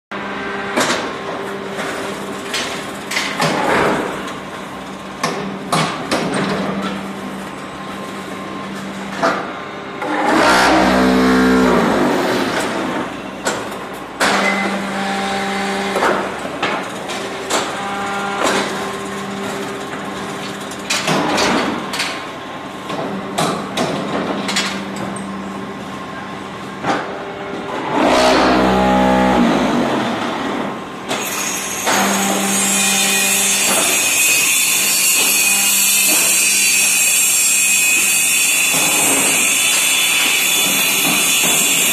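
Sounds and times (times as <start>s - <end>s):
motor and hydraulic pump hum: 0.1s - 41.9s
vibrating machine buzzing rumble: 10.0s - 13.0s, 27.2s - 30.9s.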